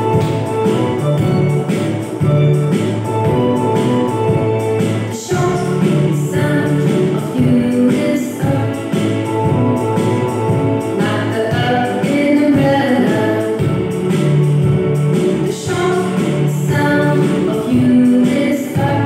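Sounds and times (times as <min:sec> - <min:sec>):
children's song over backing music: 0:04.8 - 0:10.1, 0:10.9 - 0:13.7, 0:15.4 - 0:19.0.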